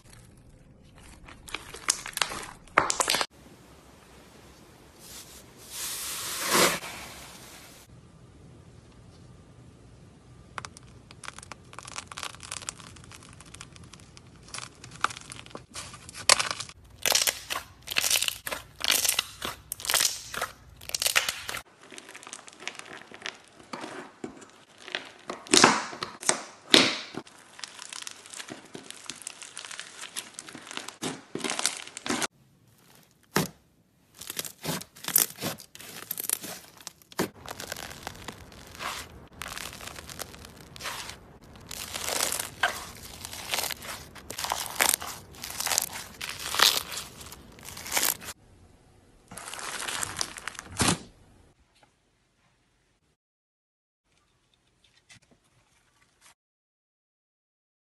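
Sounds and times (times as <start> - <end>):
slime crackling and popping: 0.0 - 3.3, 10.6 - 23.6, 24.7 - 33.5, 34.1 - 48.4.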